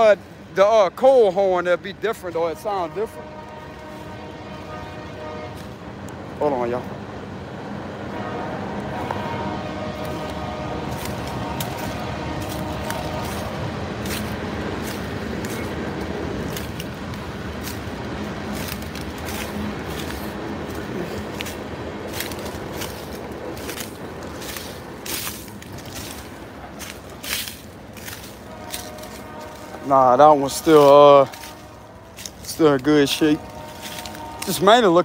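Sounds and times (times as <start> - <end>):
train rumbling: 0.0 - 35.0.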